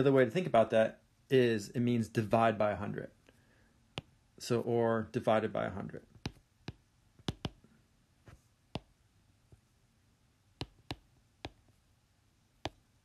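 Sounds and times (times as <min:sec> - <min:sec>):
stylus tapping on tablet screen: 0:03.9 - 0:04.2, 0:06.1 - 0:09.6, 0:10.6 - 0:11.8, 0:12.6 - 0:12.9.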